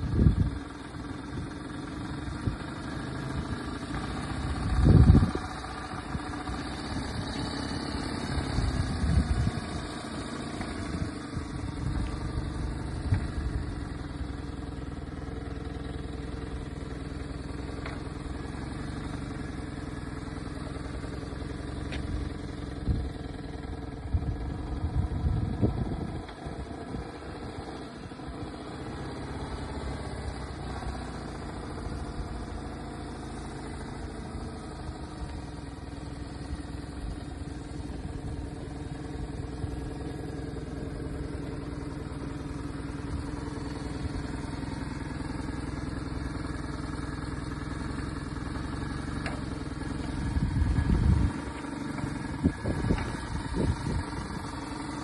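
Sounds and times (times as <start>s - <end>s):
motorcycle engine at low revs: 0.0s - 55.0s.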